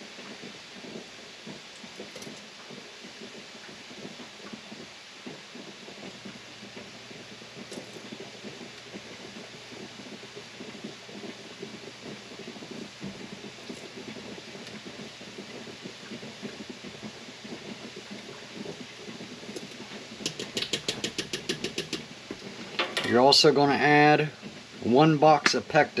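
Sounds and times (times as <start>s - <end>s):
fruit mixture bubbling: 5.4s - 26.0s.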